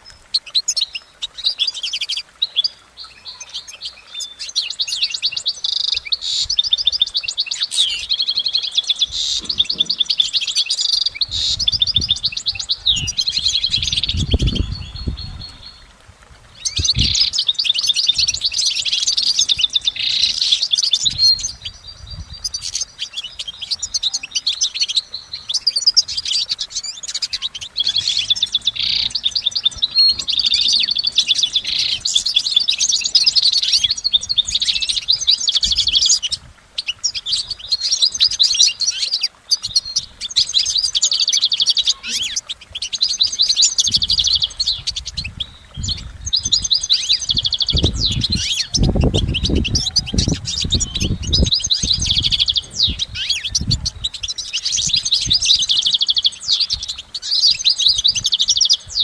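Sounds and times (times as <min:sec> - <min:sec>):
goldfinch twittering song: 0:00.0 - 0:59.0.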